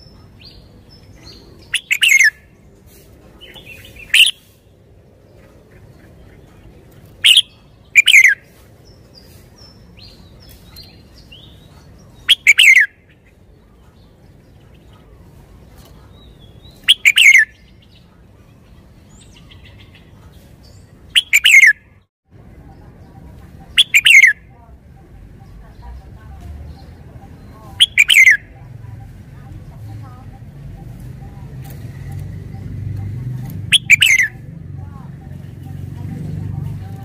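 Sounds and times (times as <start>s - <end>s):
faint bird chirps: 0.0s - 2.5s, 7.2s - 34.4s
bird singing whistled phrases: 1.3s - 2.4s, 3.5s - 4.6s, 7.2s - 8.5s, 12.2s - 13.0s, 16.7s - 17.8s, 21.2s - 21.9s, 23.7s - 24.5s, 27.4s - 28.5s, 33.7s - 34.4s.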